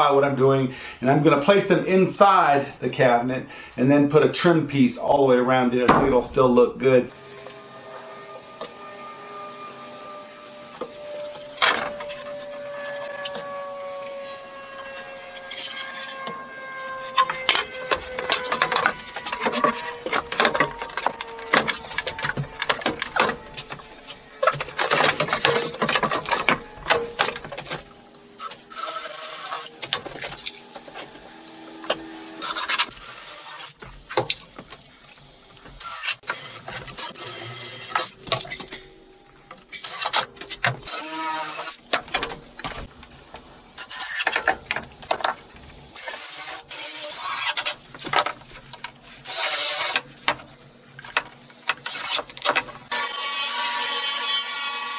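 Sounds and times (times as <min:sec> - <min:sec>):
boards knocking and clattering: 0:05.9 - 0:06.7, 0:24.4 - 0:27.9
power driver running screws: 0:28.4 - 0:30.6, 0:31.8 - 0:34.2, 0:35.8 - 0:38.5, 0:40.8 - 0:41.9, 0:49.2 - 0:50.0.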